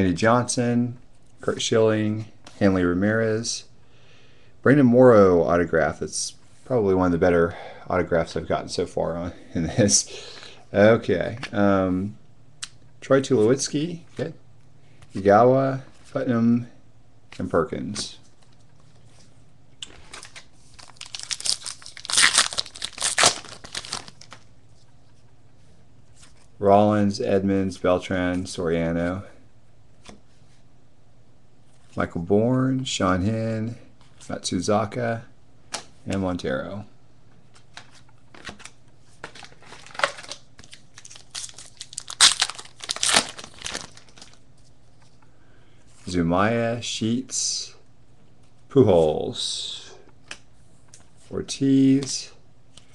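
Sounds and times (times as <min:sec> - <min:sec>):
foil wrapper tearing and crinkling: 0:20.8 - 0:24.3, 0:39.8 - 0:44.4.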